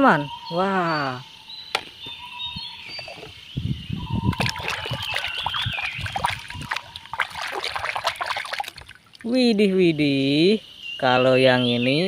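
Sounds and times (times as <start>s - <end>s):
hand splashing in water: 4.3s - 9.3s.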